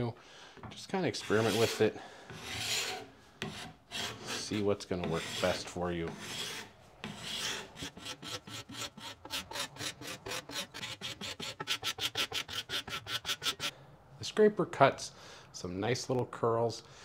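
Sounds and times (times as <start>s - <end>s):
card scraper scraping wood: 1.2s - 13.7s.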